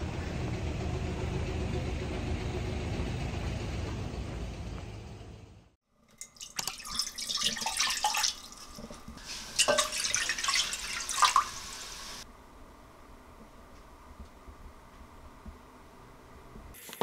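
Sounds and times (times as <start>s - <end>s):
water pouring into a ceramic pot: 6.1s - 12.2s.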